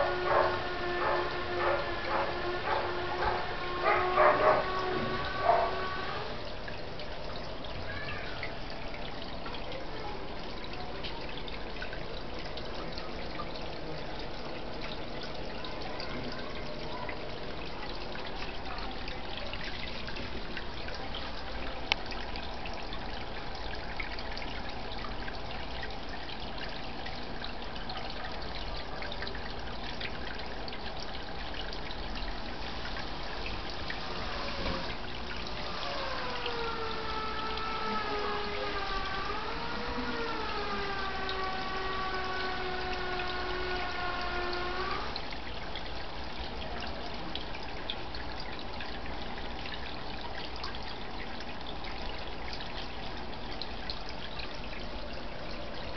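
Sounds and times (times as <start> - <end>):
water trickling and splashing: 0.0 - 55.9.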